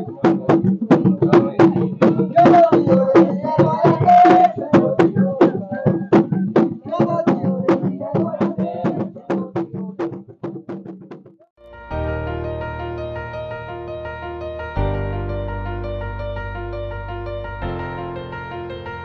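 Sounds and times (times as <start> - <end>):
hand drums playing rhythm: 0.0 - 11.6.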